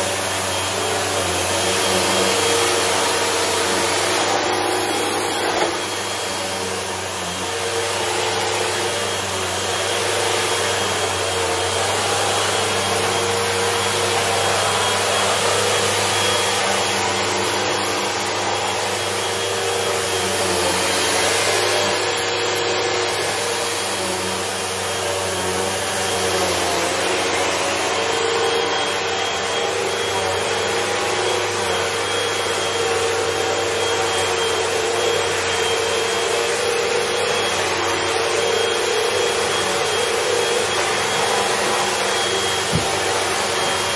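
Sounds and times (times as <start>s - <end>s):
vacuum cleaner running: 0.0s - 43.9s.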